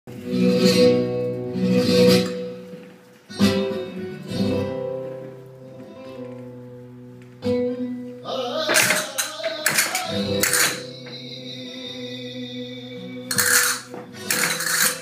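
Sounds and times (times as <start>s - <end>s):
flamenco guitar strummed chords: 0.1s - 15.0s.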